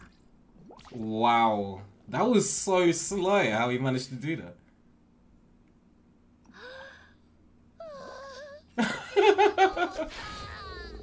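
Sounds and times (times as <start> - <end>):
character voice crying and moaning: 7.8 - 8.7, 9.4 - 11.0.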